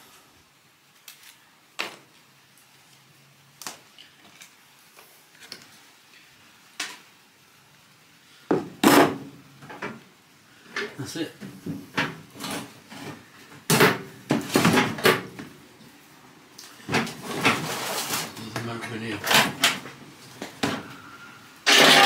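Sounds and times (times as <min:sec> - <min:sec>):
loud clatter: 0:21.7 - 0:22.0.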